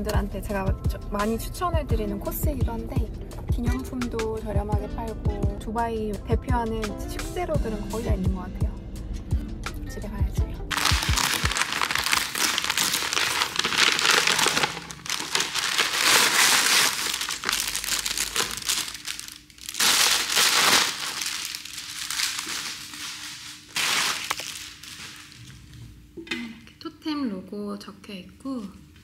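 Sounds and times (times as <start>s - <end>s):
packaging crinkling and rustling: 10.7s - 25.8s.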